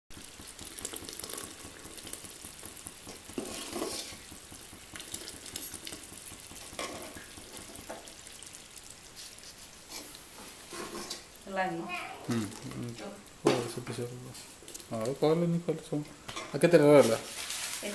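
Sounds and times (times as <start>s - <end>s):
hot liquid sizzling in pot: 0.1s - 17.9s
metal ladle scraping pot: 3.3s - 4.2s, 6.6s - 7.9s, 9.9s - 11.3s.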